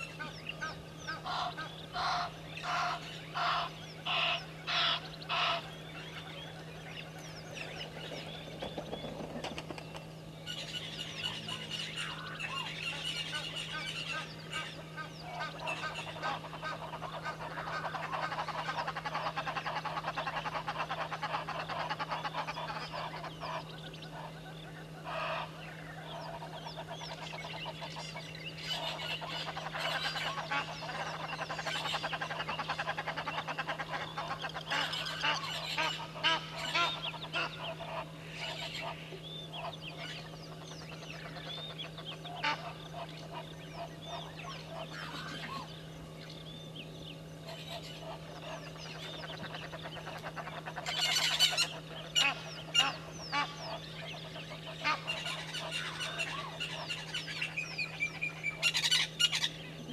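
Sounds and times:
birds calling: 0.0s - 59.9s
steady low hum: 0.0s - 59.9s
goose-like honking: 0.2s - 5.7s, 12.9s - 24.4s, 27.4s - 39.0s, 42.2s - 45.7s, 47.4s - 57.1s.

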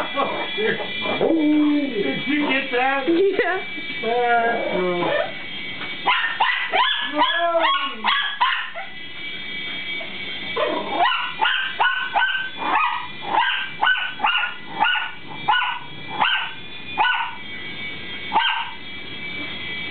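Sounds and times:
toy helicopter rotor whine: 0.0s - 19.9s
small dog barking: 6.0s - 9.0s, 10.6s - 17.4s, 18.4s - 18.8s.

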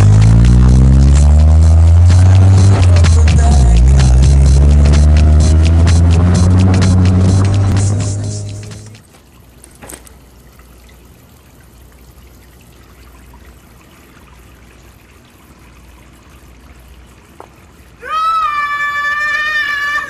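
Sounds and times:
tap water trickling: 8.5s - 18.0s.

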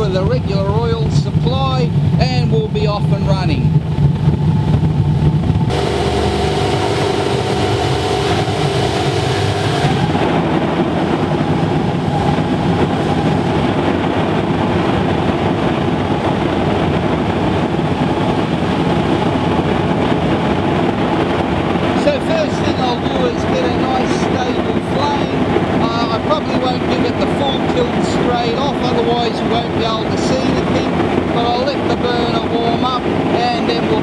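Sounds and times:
gas flame burning with a rush: 0.0s - 34.0s
steady whine: 0.0s - 34.0s.

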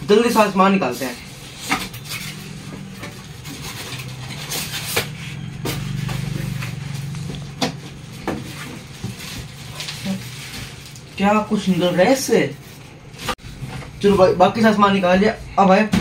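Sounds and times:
packing pieces scraping cardboard: 1.2s - 13.4s.

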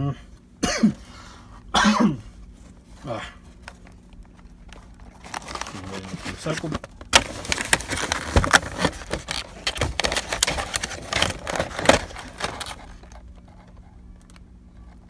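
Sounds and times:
faint steady hum: 0.0s - 15.0s
plastic bag crinkling: 3.8s - 14.4s.

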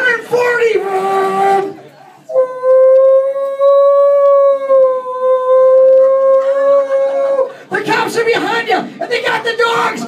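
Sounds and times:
person singing long high note: 0.9s - 7.5s.

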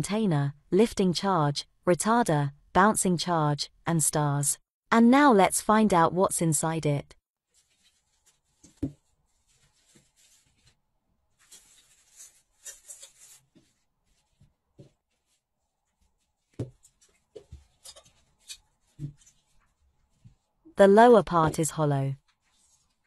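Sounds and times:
plastic and paper crinkling: 7.5s - 20.5s, 22.2s - 23.0s.

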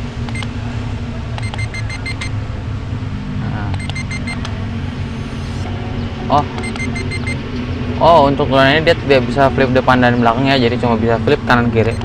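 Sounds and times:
steady low rumble: 0.0s - 12.0s
short high electronic beeps: 1.4s - 2.4s, 3.8s - 4.4s, 5.2s - 7.4s.

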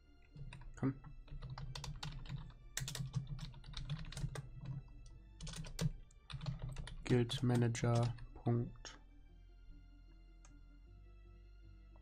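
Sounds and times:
computer keyboard typing: 0.4s - 8.2s.

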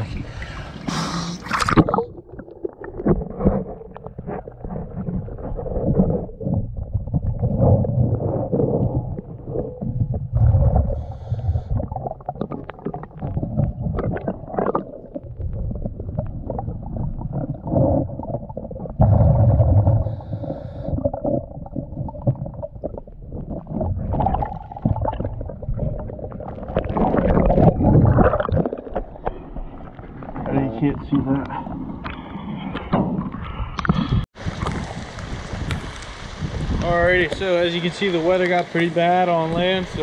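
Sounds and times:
water sloshing: 0.0s - 35.2s
exhaled bubbles rumbling: 0.0s - 37.7s
regulator inhale hiss: 20.0s - 21.0s.

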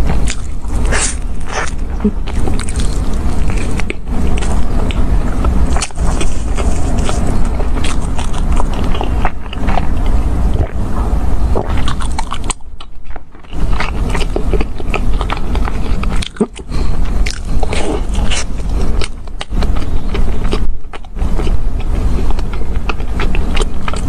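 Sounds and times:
person chewing and biting food: 0.0s - 24.0s.

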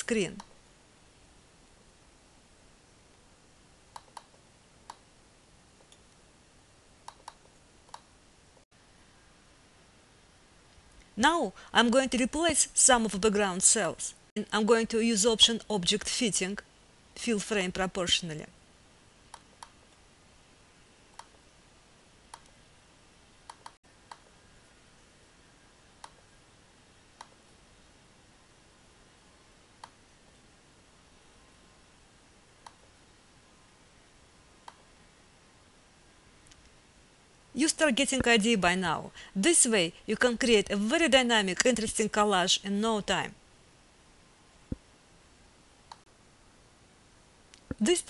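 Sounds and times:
faint steady hiss: 0.0s - 48.0s
computer mouse clicking: 3.9s - 5.0s, 7.0s - 8.1s, 23.5s - 24.3s, 26.0s - 26.2s, 34.6s - 34.8s.

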